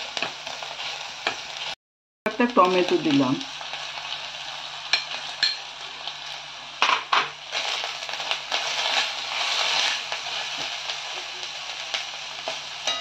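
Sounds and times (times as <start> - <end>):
tomato sizzling in oil: 0.0 - 13.0
spatula scraping pan: 8.6 - 11.3.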